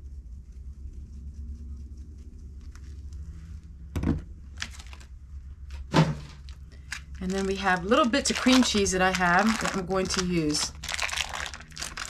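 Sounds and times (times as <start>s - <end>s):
steady low hum: 0.0s - 12.0s
knocks on countertop: 4.0s - 4.3s.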